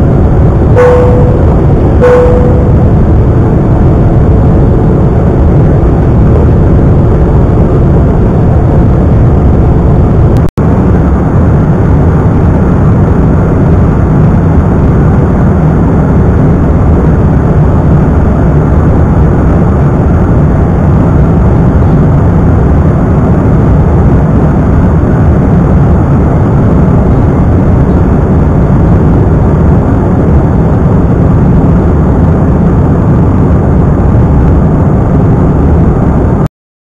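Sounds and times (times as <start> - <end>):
jet engine roar in cabin: 0.0 - 36.5.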